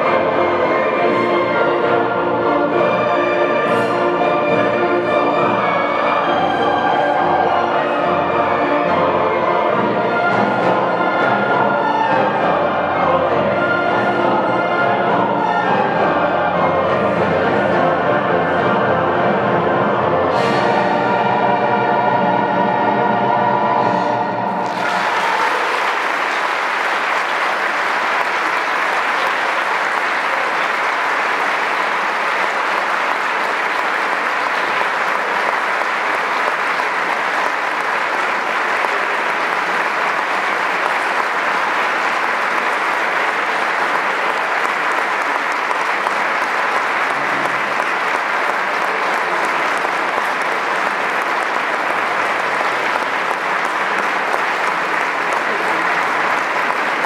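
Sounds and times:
audience applauding: 0:00.0 - 0:12.4, 0:24.5 - 0:57.0.

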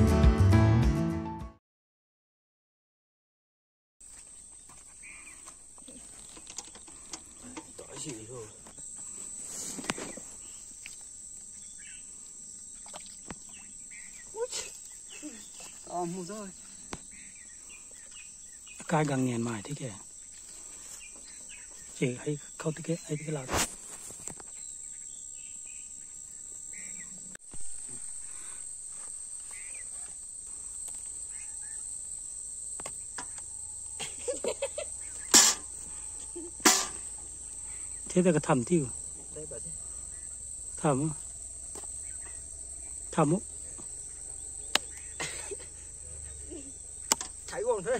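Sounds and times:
insects trilling: 0:04.0 - 0:47.9
sharp knocks: 0:36.6 - 0:37.1, 0:47.0 - 0:47.5.

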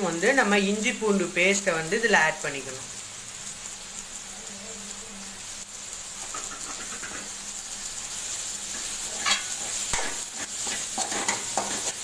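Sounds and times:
paste sizzling in oil: 0:00.0 - 0:12.0
metal spoon scraping pan: 0:06.3 - 0:07.4, 0:08.7 - 0:12.0.

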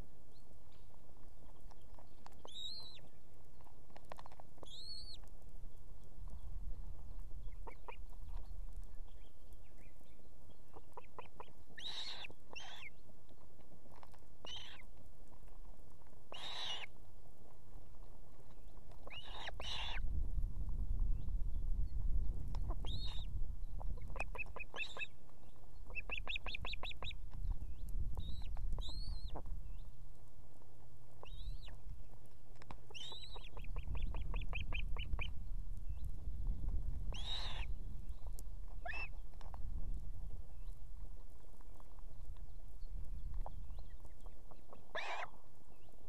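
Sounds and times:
wind rumble on microphone: 0:00.0 - 0:16.3, 0:16.9 - 0:46.0
ospreys whistled calls: 0:11.8 - 0:12.9, 0:16.4 - 0:16.9, 0:37.2 - 0:37.7.

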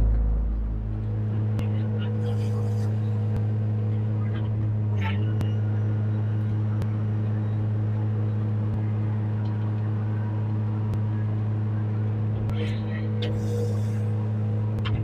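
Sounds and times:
excavator diesel engine running: 0:00.0 - 0:09.3.

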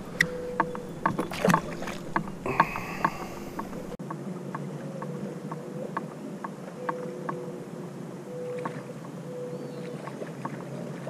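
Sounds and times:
steady low hum: 0:00.0 - 0:04.0
water lapping against boat hull: 0:00.0 - 0:04.0.

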